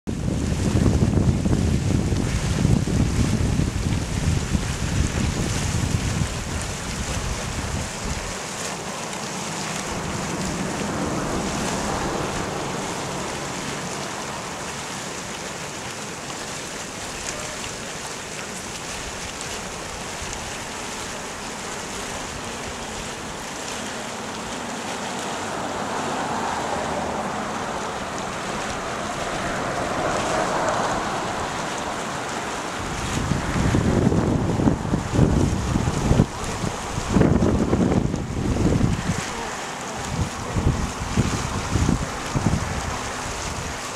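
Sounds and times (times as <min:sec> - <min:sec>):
wind buffeting microphone: 0:00.1 - 0:08.6, 0:09.4 - 0:14.6, 0:24.3 - 0:43.9
hot spring churning hiss: 0:00.2 - 0:43.9.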